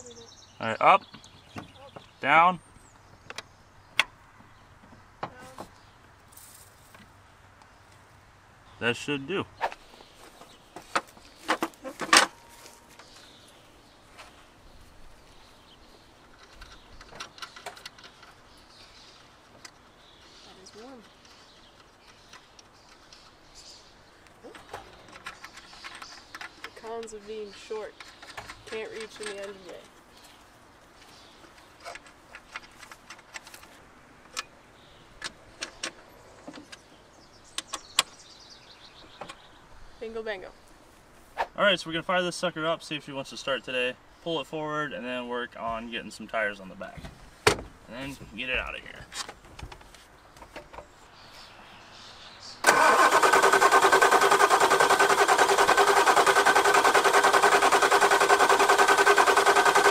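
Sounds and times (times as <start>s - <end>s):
bird singing: 0.0s - 6.2s, 8.6s - 32.9s, 34.3s - 40.7s, 50.1s - 55.0s
clicks and taps of engine parts: 24.5s - 27.2s.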